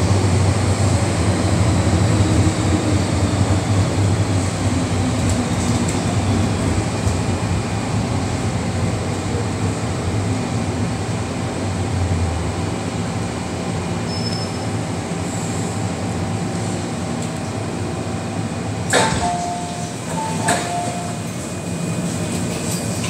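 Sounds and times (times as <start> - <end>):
train running noise: 0.0 - 23.0
train doors opening burst: 18.8 - 23.0.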